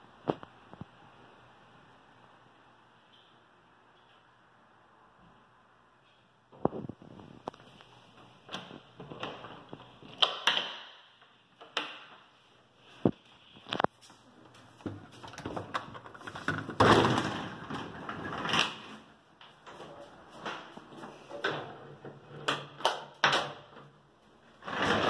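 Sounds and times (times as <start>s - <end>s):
elevator doors opening and shutting: 15.2s - 23.9s, 24.6s - 25.0s.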